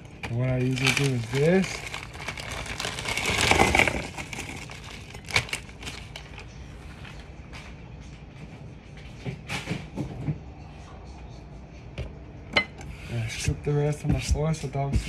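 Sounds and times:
crinkly plastic bag: 0.0 - 7.2.

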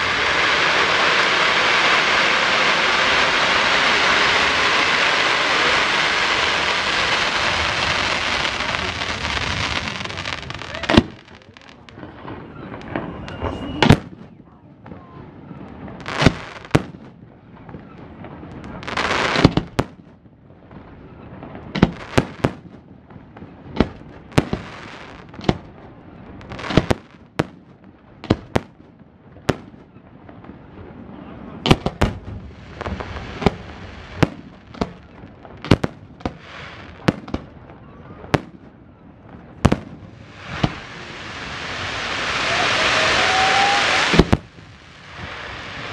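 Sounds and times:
fireworks hissing rushes: 0.0 - 14.0, 15.9 - 16.8, 31.9 - 37.4, 39.6 - 45.9
fireworks bursting with sharp bangs: 0.0 - 45.9.

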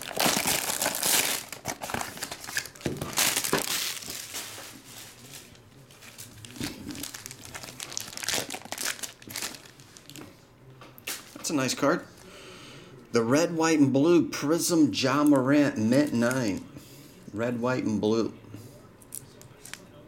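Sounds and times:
plastic wrap crinkling: 0.0 - 10.3, 15.3 - 16.6.

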